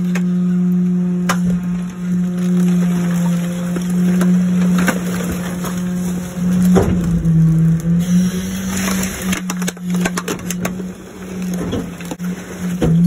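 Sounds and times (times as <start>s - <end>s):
truck engine and hydraulics hum: 0.0s - 13.0s
plastic cracking and crunching: 1.2s - 8.0s, 8.6s - 13.0s.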